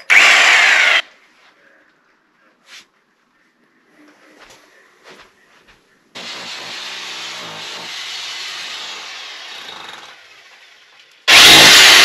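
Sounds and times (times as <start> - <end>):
power saw cutting timber: 0.0 - 1.0, 6.2 - 10.7, 11.3 - 12.0.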